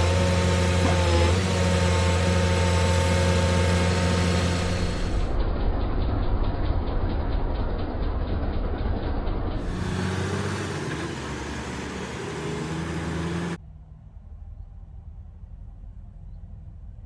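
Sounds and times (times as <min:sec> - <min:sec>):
diesel truck engine clattering: 0:00.0 - 0:13.6
low rumble: 0:04.0 - 0:09.8, 0:13.6 - 0:17.0.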